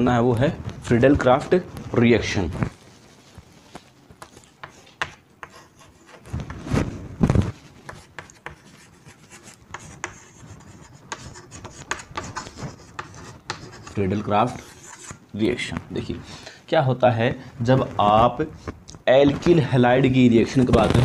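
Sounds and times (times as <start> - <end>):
chalk tapping and scratching: 4.2 - 6.8, 7.6 - 15.2.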